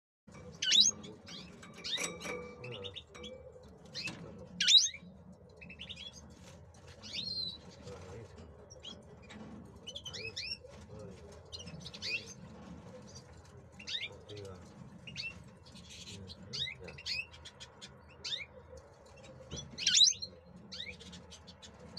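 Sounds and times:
goldfinch singing: 0.4 - 6.2, 11.5 - 12.4, 13.8 - 14.4, 19.5 - 21.6.

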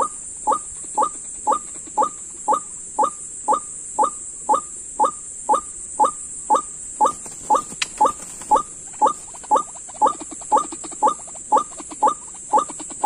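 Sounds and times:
waterhen calls: 6.5 - 12.2
sharp clicks: 7.0 - 9.5.

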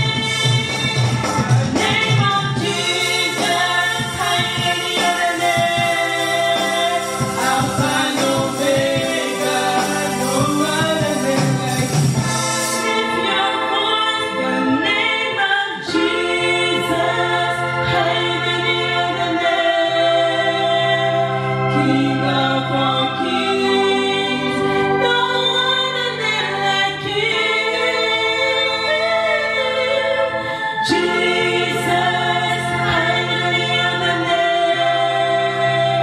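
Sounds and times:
woman singing into a microphone: 0.0 - 12.0, 12.6 - 36.0
electronic keyboard chords: 0.0 - 36.0.

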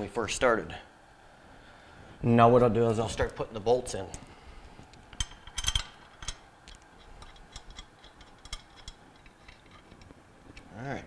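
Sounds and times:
steel bolts clicking: 5.1 - 10.1.

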